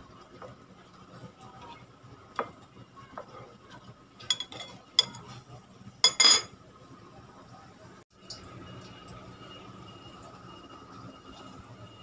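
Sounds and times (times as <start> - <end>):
metal utensils clinking on plate: 4.2 - 5.3, 6.0 - 6.6.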